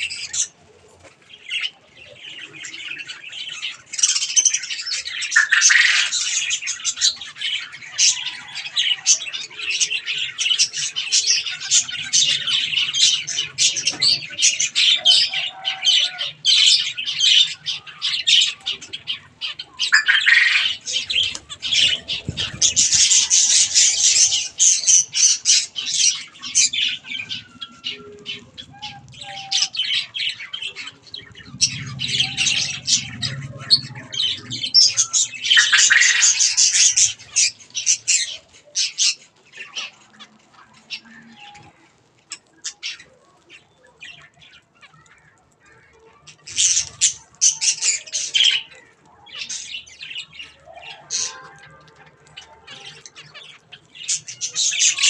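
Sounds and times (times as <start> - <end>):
finches calling: 16.5 - 38.3.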